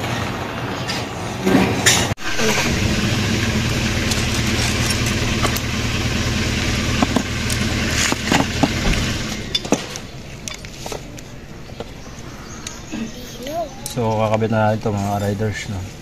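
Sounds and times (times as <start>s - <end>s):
engine humming: 2.1s - 14.8s.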